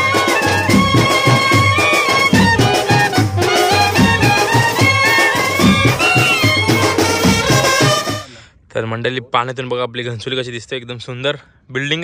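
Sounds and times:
steady bass beat: 0.0 - 8.2
wind instrument melody: 0.0 - 8.4.

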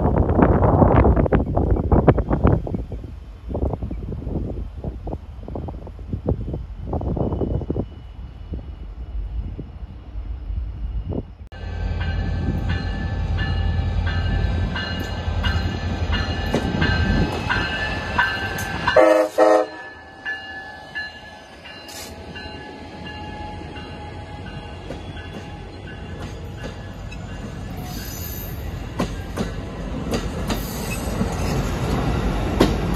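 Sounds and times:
diesel locomotive engine rumble: 0.0 - 32.9
train wheels rolling on rail: 0.0 - 32.9
train horn blasts: 18.8 - 20.2.

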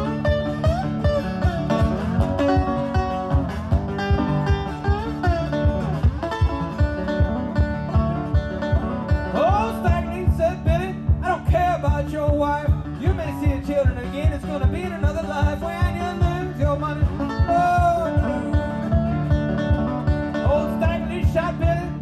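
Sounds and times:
fingerpicked resonator guitar: 0.0 - 22.0
man singing: 8.6 - 22.0.

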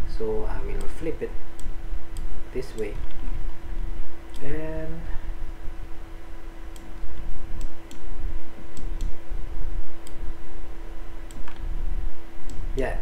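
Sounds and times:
steady low hum: 0.0 - 13.0
computer mouse clicking: 6.7 - 8.1, 8.7 - 9.2, 10.0 - 10.2.

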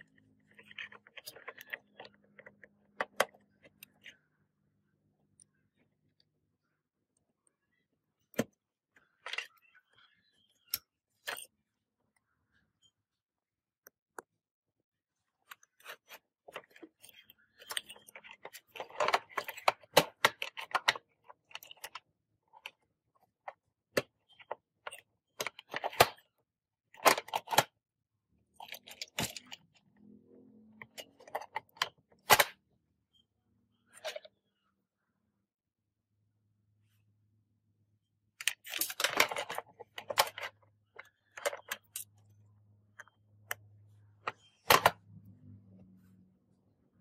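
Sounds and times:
small hard parts clattering: 0.0 - 4.1, 15.4 - 22.8, 28.6 - 29.8, 38.4 - 42.3.

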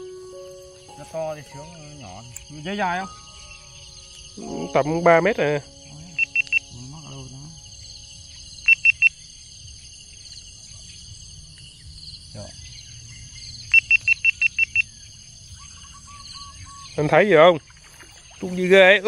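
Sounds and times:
sharp high chirps: 0.0 - 9.2
insects buzzing: 0.0 - 19.0.

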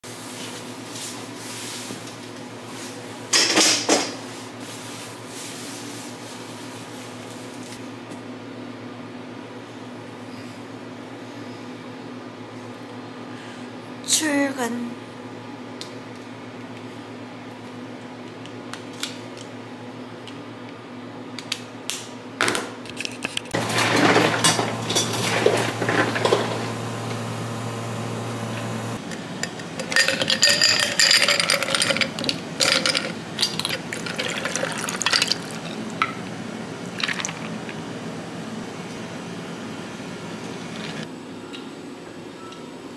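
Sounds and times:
dishes and utensils clattering: 23.6 - 26.7, 29.4 - 36.2
water running into container: 31.6 - 36.1, 36.8 - 37.8.

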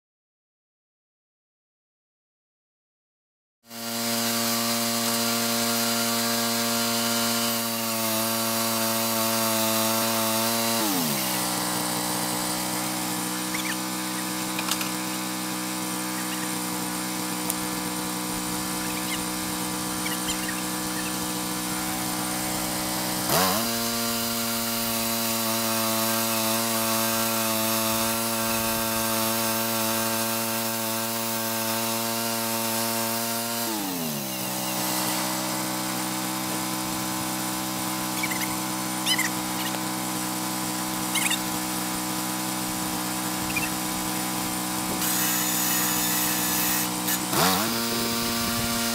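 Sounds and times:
sawmill engine running: 3.7 - 48.9.

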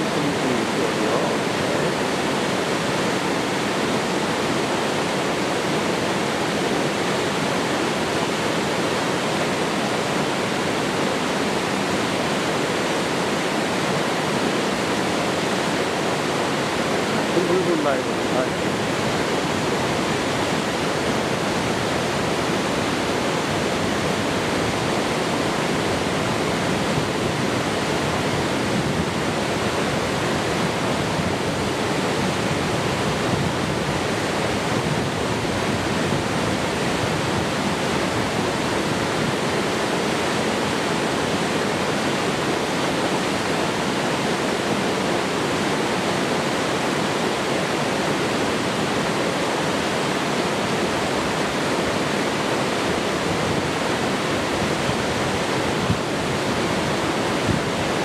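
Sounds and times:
waterfall pouring over rocks: 0.0 - 58.0.

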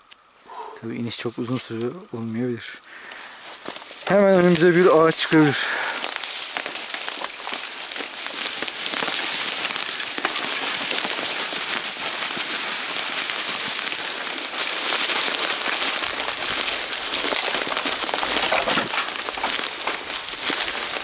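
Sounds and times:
bike tyres rolling over dry leaves: 0.0 - 21.0.

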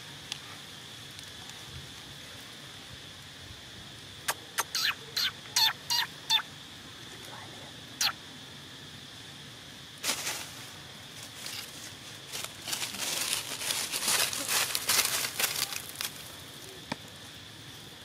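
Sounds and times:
dry leaves crunching: 10.0 - 16.4.

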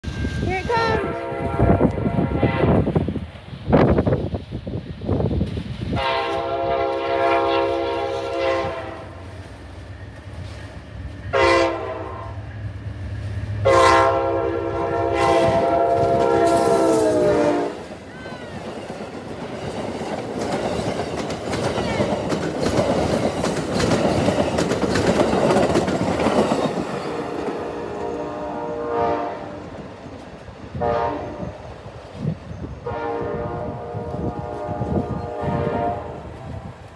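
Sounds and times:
train passing with loud rush: 0.0 - 36.9
train air horn blasts: 0.9 - 3.0, 5.9 - 9.3, 11.3 - 12.4, 13.6 - 17.8, 27.1 - 29.8, 30.7 - 31.6, 32.8 - 36.9
wheels clattering on rails: 18.1 - 27.6.

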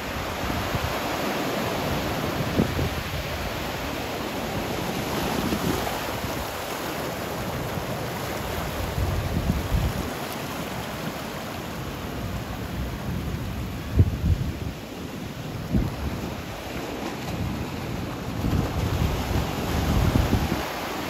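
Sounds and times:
surf washing over rocks: 0.0 - 21.0
wind buffeting microphone: 13.2 - 14.9, 15.6 - 20.9.

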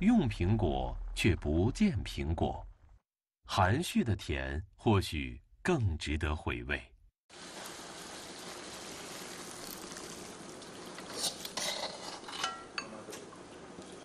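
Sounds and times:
steady hiss: 7.3 - 11.2
dishes clinking: 11.3 - 13.2.

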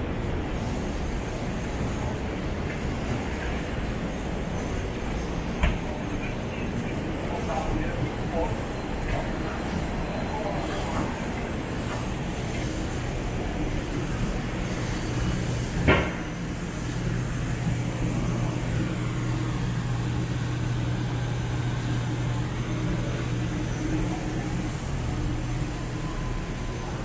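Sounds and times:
traffic engine hum: 10.9 - 27.0.

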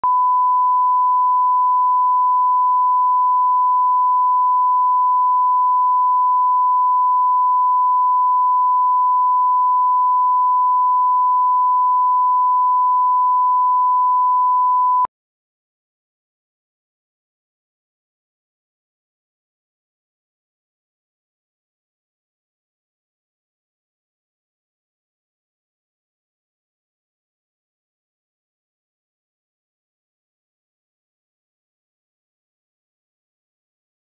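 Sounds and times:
steady test tone beep: 0.0 - 15.1.

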